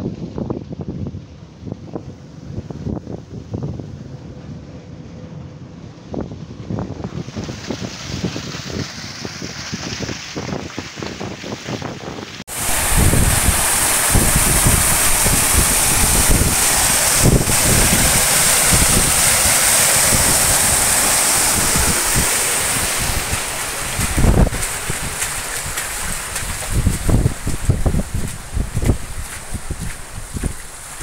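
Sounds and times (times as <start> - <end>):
wind buffeting microphone: 0.0 - 31.0
water gushing onto deck: 6.6 - 31.0.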